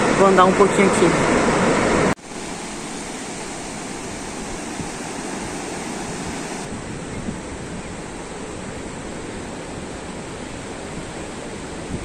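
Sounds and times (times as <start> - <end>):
loud rush of noise: 0.0 - 6.9
surf washing on beach: 0.0 - 12.0.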